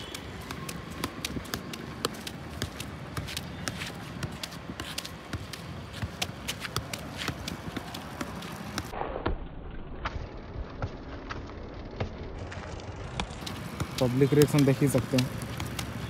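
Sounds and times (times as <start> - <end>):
football kicked taps: 0.0 - 8.9.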